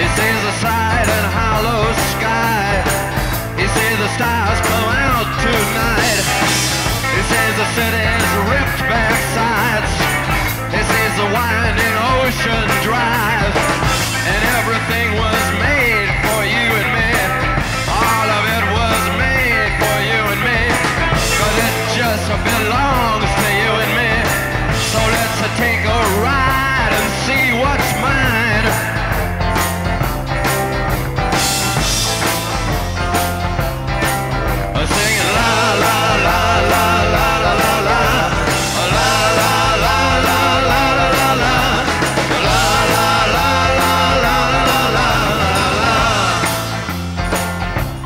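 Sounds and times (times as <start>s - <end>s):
rock song: 0.0s - 48.0s.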